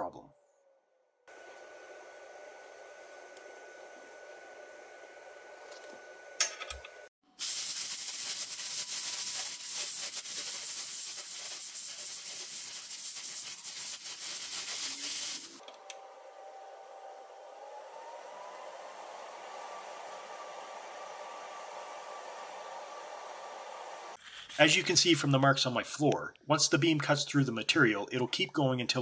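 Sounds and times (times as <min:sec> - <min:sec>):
loud hissing of compressed air: 0:07.3 - 0:15.6.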